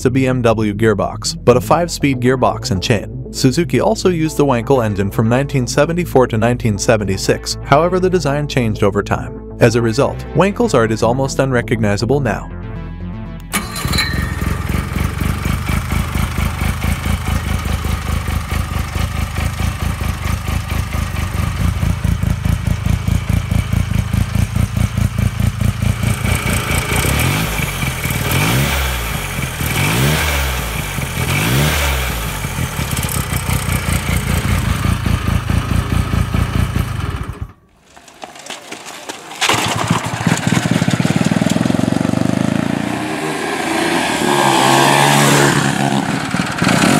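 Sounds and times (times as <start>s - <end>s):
motorcycle engine pulsing close up: 13.5s - 37.6s, 38.4s - 46.9s
motorcycle engine on distant road: 13.5s - 46.9s.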